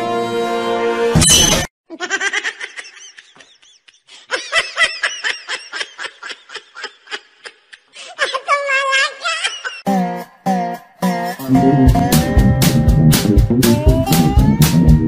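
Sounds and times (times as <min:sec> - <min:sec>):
person giggling: 0:01.9 - 0:09.9.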